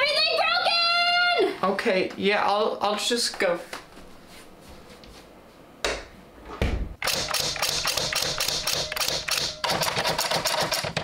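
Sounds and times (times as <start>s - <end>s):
typewriter keys clacking: 7.0s - 11.0s.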